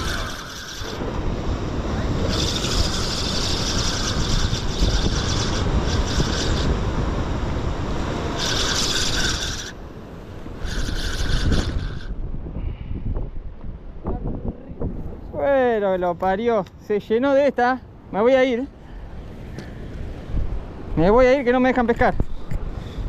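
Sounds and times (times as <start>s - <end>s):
wind buffeting microphone: 0.0s - 16.4s, 19.1s - 23.0s.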